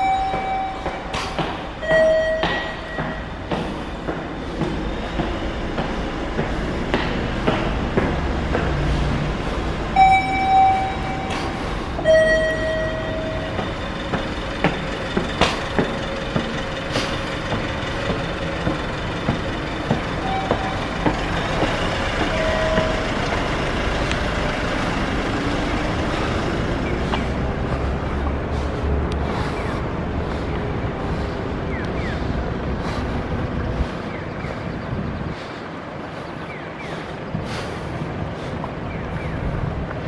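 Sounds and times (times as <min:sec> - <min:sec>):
two-note electronic chime: 0:00.0 - 0:01.2, 0:01.8 - 0:03.3, 0:10.0 - 0:13.6
footsteps on stone stairs: 0:00.0 - 0:40.0
engine rising in pitch: 0:09.2 - 0:28.8.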